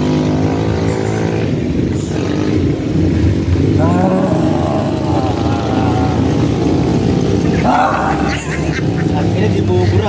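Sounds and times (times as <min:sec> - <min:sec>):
engine running: 0:00.0 - 0:10.0.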